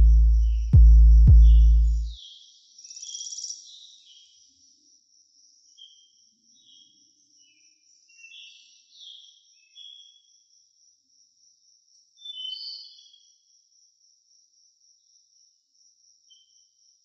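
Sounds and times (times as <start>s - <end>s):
bird chirping: 0.0s - 4.4s.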